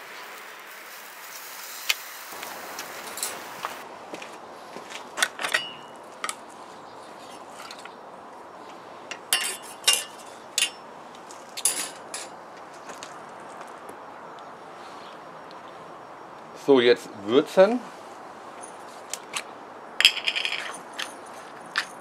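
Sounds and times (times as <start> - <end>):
metal tongs clinking on grill: 5.5 - 6.4, 9.1 - 10.8, 11.6 - 12.4.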